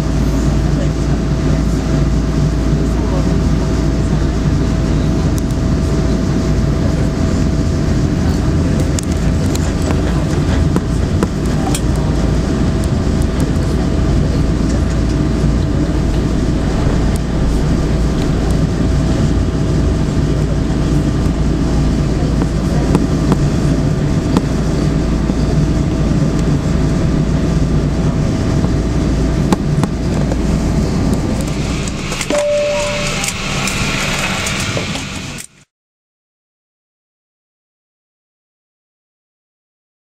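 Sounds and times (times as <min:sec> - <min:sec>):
aircraft cabin rumble: 0:00.0 - 0:35.6
thin steady whine: 0:03.9 - 0:35.7.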